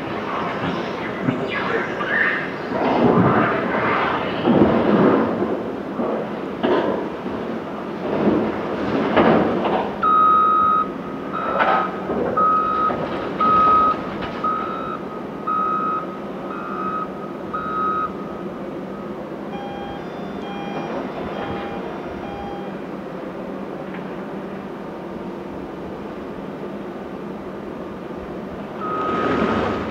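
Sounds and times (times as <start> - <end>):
lower-pitched reversing alarm: 0.0 - 3.3, 10.0 - 11.8, 12.4 - 22.9, 28.8 - 29.6
reversing alarm beeping: 0.0 - 3.3, 10.0 - 22.9, 28.8 - 29.9
loader engine running: 8.0 - 26.3, 27.1 - 29.9.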